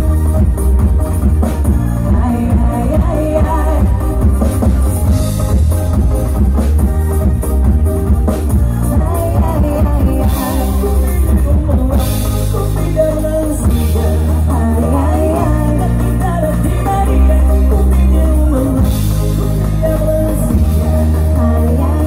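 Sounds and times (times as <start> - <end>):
drum kit with cymbals: 0.0 - 22.0
electric guitars: 0.0 - 22.0
heavy bass line: 0.0 - 22.0
person singing: 8.5 - 22.0.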